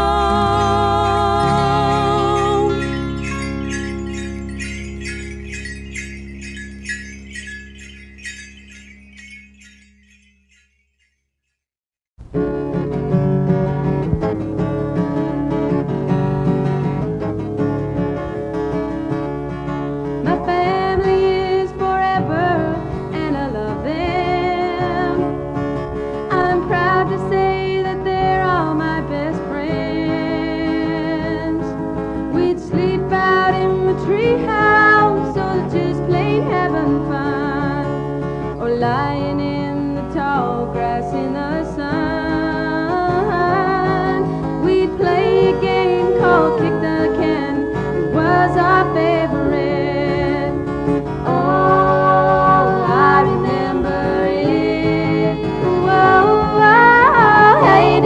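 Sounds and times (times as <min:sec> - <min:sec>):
country song singer: 0:00.0 - 0:03.3, 0:26.3 - 0:58.0
guitar accompaniment: 0:00.0 - 0:09.4, 0:12.3 - 0:58.0.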